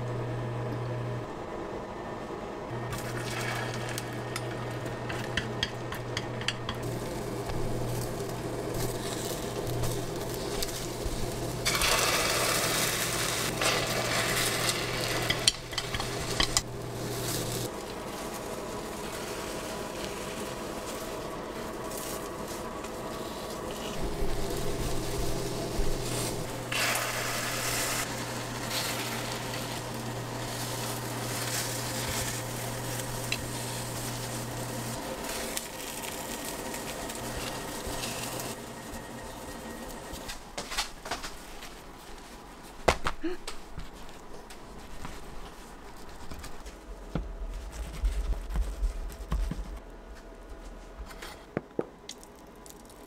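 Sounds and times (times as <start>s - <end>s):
steady low hum: 0.0s - 52.2s
food sizzling in a pan: 6.8s - 40.3s.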